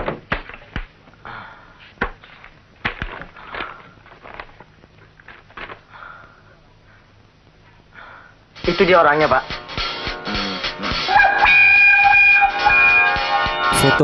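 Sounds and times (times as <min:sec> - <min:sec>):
pages rustling: 0:01.8 - 0:05.9.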